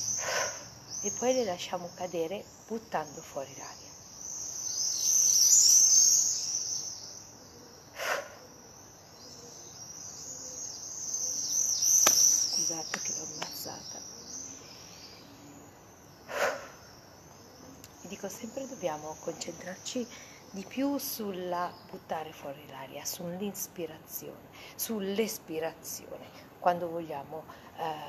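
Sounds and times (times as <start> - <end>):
rushes of breath: 0.2 - 0.7, 7.9 - 8.4, 16.3 - 16.9.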